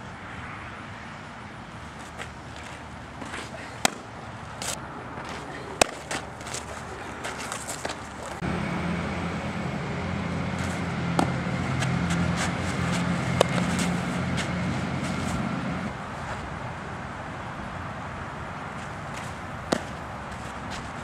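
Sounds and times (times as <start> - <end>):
softball smacking into glove: 3.8 - 4.1, 5.8 - 6.2, 13.4 - 13.9, 19.7 - 20.0
low engine hum: 7.0 - 16.1.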